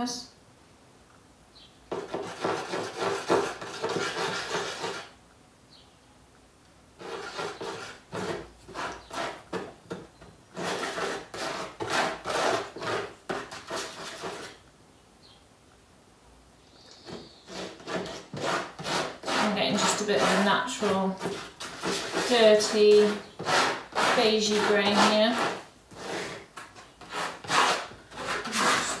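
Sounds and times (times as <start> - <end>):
plastic scraper rasping on board: 1.9 - 5.1, 7.0 - 14.6, 17.0 - 29.0.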